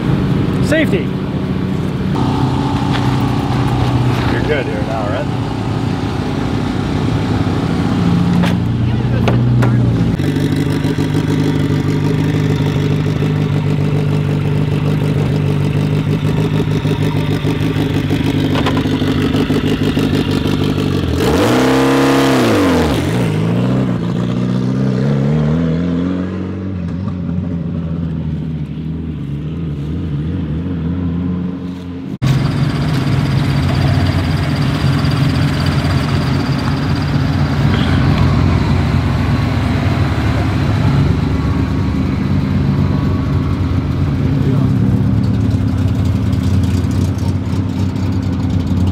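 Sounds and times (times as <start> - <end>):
rally car engine idling: 0.0 - 21.2, 32.2 - 48.9
rally car engine revving hard: 2.2 - 26.7.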